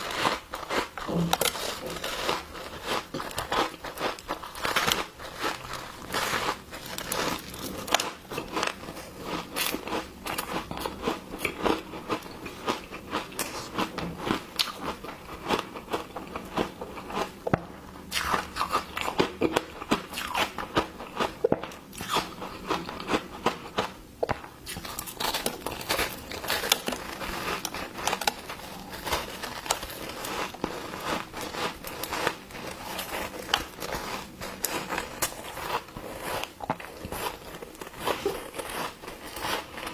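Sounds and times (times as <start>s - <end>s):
ice crunching between teeth: 24.6s - 39.9s.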